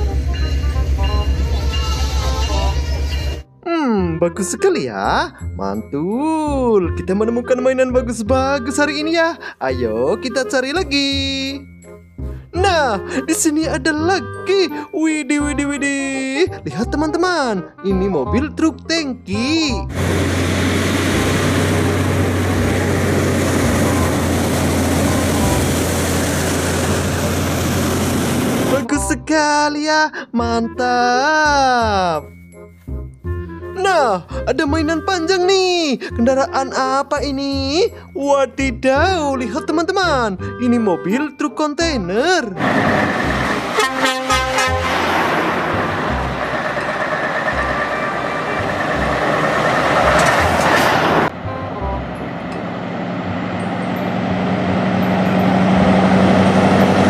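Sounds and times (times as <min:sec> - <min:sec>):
diesel truck engine driving past: 0:19.9 - 0:28.8, 0:42.6 - 0:57.0
road noise: 0:19.9 - 0:28.9, 0:42.6 - 0:57.0.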